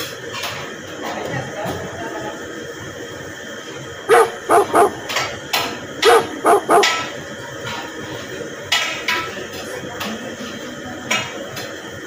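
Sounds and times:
dog barking: 4.1 - 5.1, 6.0 - 7.1.

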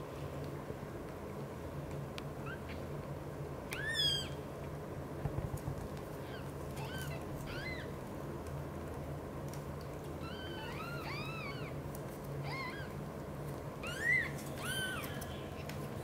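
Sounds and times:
kittens squeaking mews: 3.7 - 4.4, 6.2 - 7.9, 10.2 - 11.8, 12.4 - 13.0, 13.8 - 15.3.

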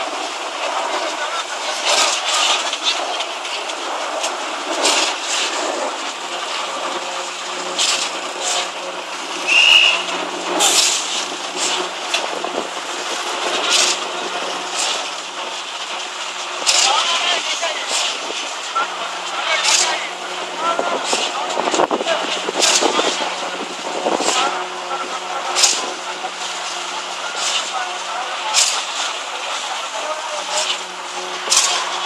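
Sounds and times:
concrete pump hissing surges: 0.0 - 32.0
machinery hum: 0.0 - 32.0
short high whistle: 9.5 - 10.1.

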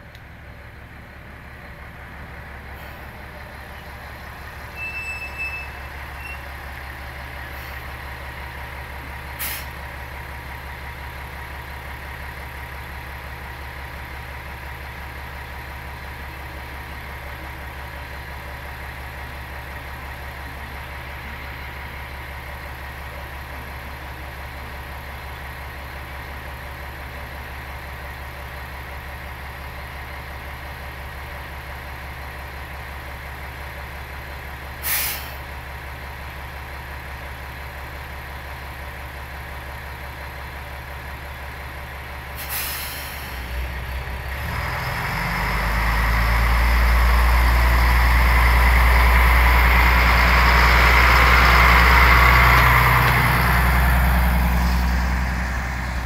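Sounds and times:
diesel railcar engine idling: 0.0 - 56.0
high beep: 4.7 - 6.5.

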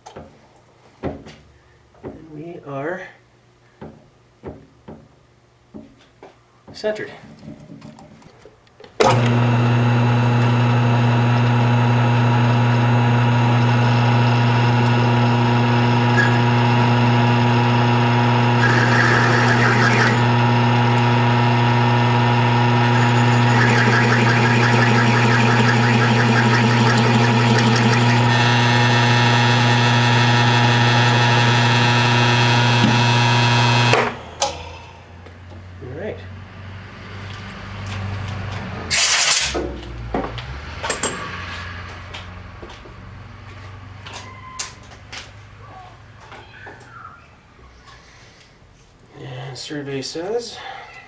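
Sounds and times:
milling machine spindle humming: 9.0 - 34.1
bit cutting steel: 18.3 - 21.0, 22.2 - 34.6, 38.9 - 39.6.

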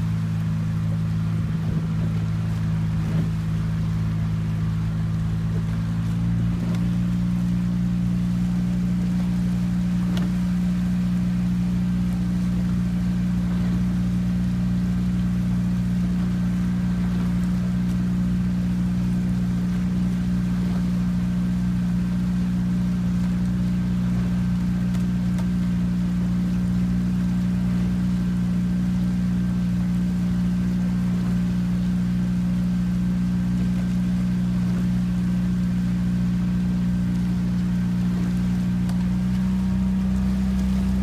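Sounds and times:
motorboat engine droning: 0.0 - 41.0.

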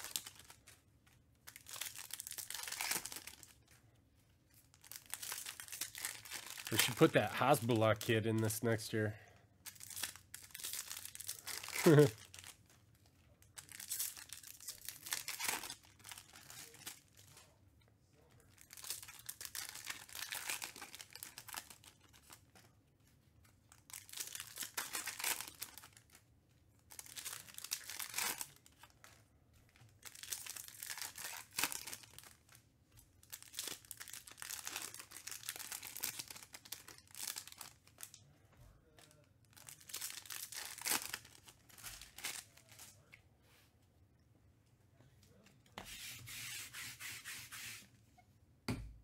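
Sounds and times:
foil wrappers tearing and crinkling: 0.0 - 0.8, 1.4 - 3.6, 4.7 - 8.7, 9.7 - 12.7, 13.4 - 17.4, 18.6 - 22.5, 23.8 - 26.2, 26.9 - 28.9, 30.0 - 32.6, 33.2 - 38.2, 39.0 - 43.1.

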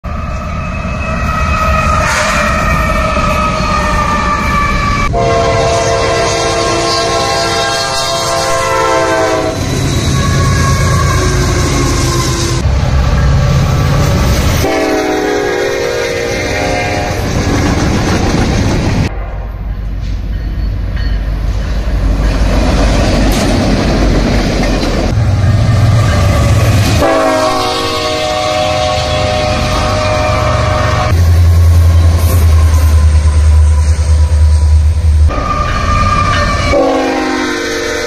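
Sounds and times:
locomotive engines rumbling: 0.0 - 38.0
locomotive air horn: 0.1 - 12.6, 14.6 - 17.2, 26.9 - 31.2, 35.3 - 38.0
wheels running on rail: 0.4 - 19.1.

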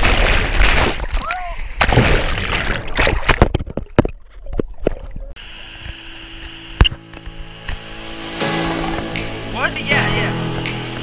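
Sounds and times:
water bubbling underwater: 1.8 - 5.4
river water rushing: 7.4 - 11.0.

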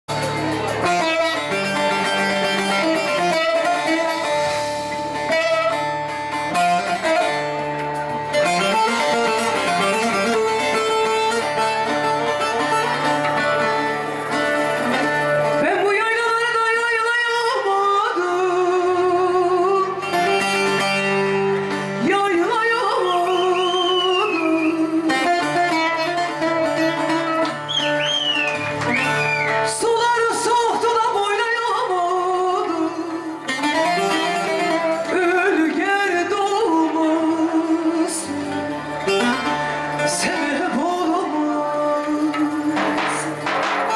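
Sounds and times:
folk lute playing: 0.1 - 43.9
woman singing: 15.6 - 20.1, 22.0 - 26.2, 29.7 - 43.4.

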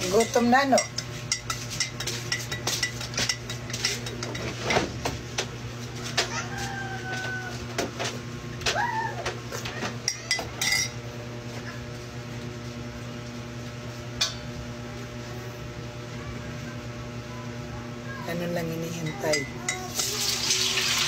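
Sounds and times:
spoon clinking against glass mug: 0.0 - 4.5, 10.1 - 11.0, 18.9 - 20.1
dishes and utensils clattering: 0.0 - 5.2, 9.6 - 11.0
steady low hum: 0.0 - 6.3, 6.9 - 20.2.

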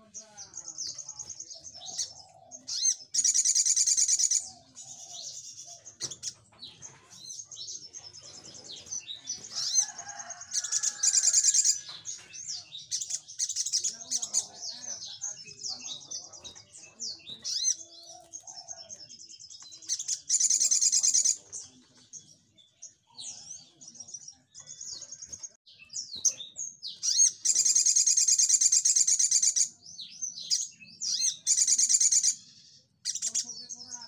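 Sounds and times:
bird chirps and twitters: 0.0 - 34.0
loud rapid bird trills: 0.7 - 6.4, 8.0 - 19.0, 26.0 - 33.8.

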